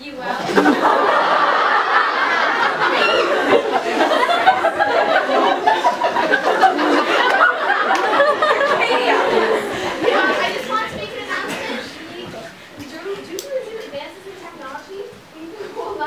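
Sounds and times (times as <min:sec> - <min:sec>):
chatter: 0:00.0 - 0:16.0
crowd laughing loudly: 0:00.4 - 0:12.0.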